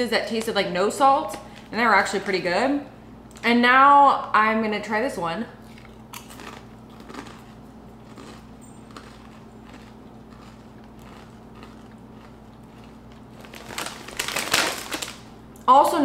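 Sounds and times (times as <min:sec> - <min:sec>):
potato chip crunching: 0:05.6 - 0:15.4.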